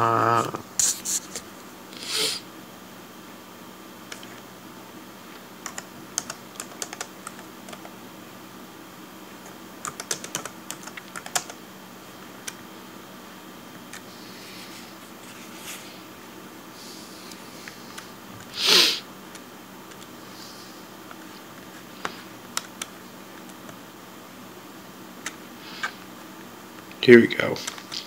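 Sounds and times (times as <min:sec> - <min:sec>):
typing on laptop keyboard: 0:05.6 - 0:07.9, 0:09.4 - 0:11.6.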